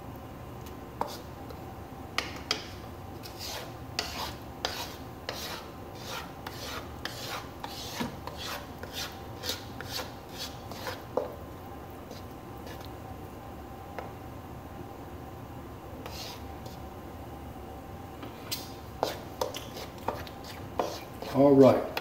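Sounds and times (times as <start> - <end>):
wooden spoon scraping skillet: 3.2 - 11.3, 16.0 - 16.8, 18.4 - 21.6.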